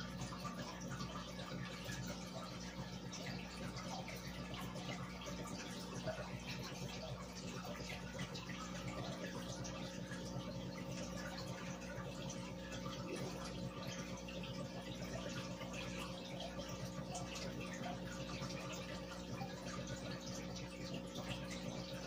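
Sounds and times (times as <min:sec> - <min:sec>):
aquarium air bubbles bubbling: 0:00.0 - 0:22.0
constant low hum: 0:00.0 - 0:22.0.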